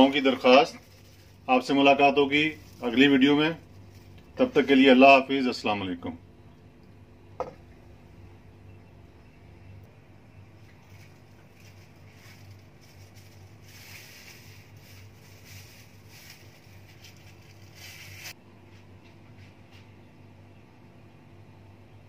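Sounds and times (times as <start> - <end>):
faint low hum: 0.0 - 22.0
soft rustling swishes: 10.8 - 18.4.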